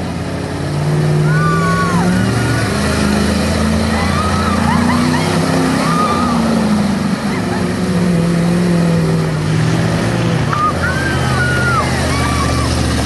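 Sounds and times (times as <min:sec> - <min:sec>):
truck engine running at low revs: 0:00.0 - 0:13.0
people shouting and whooping: 0:01.2 - 0:02.8, 0:03.8 - 0:07.8, 0:10.5 - 0:13.0.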